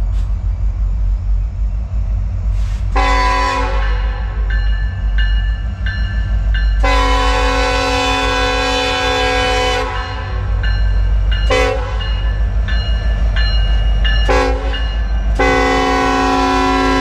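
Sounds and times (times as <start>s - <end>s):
train rumble: 0.0s - 17.0s
locomotive air horn: 2.9s - 4.4s, 6.8s - 10.4s, 11.5s - 12.0s, 14.3s - 14.7s, 15.4s - 17.0s.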